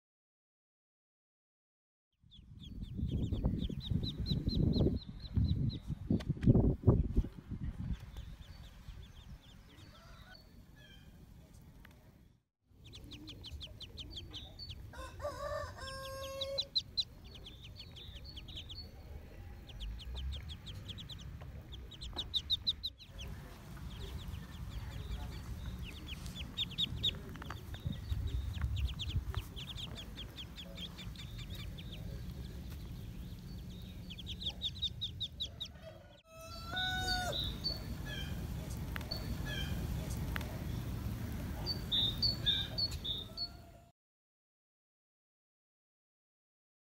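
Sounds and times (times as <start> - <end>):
ducklings peeping: 2.3 - 6.0, 7.8 - 11.1, 12.8 - 43.8
farmyard fowl calling: 9.9 - 10.4, 12.9 - 17.5, 34.1 - 38.4.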